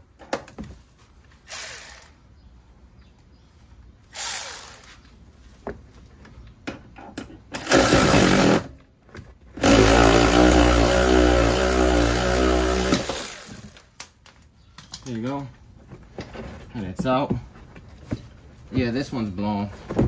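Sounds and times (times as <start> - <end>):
electric ratchet running: 1.5 - 2.2, 4.1 - 4.9, 7.6 - 8.7, 9.6 - 13.8.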